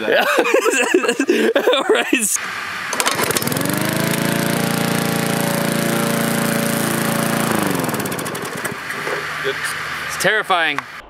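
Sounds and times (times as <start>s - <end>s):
lawn mower engine revving: 2.4s - 11.0s.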